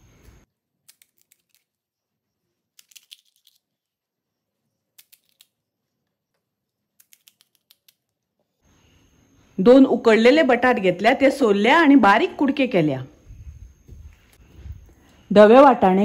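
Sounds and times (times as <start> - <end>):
fried shells cracking: 0.8 - 1.8, 2.8 - 3.7, 5.0 - 5.6, 7.0 - 8.1.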